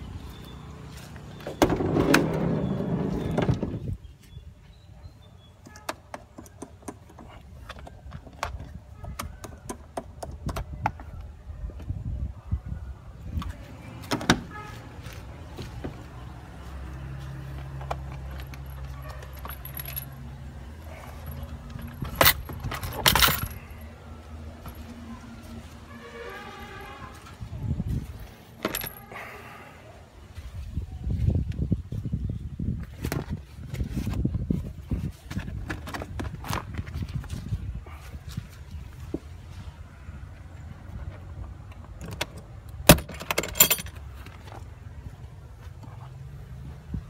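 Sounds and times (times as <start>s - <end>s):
sliding door rolling open: 1.6s - 3.8s.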